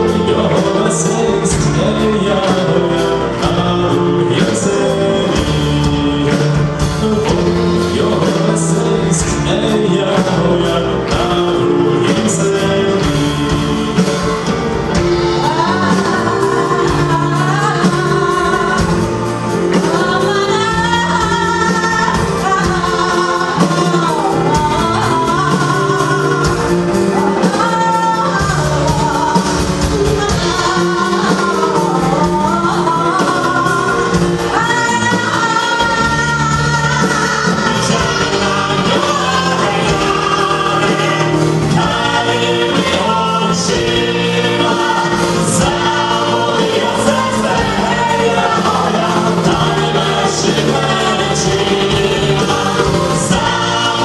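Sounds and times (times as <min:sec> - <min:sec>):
live rock band with strings: 0:00.0 - 0:54.0
man singing: 0:00.0 - 0:54.0
woman singing: 0:00.0 - 0:54.0.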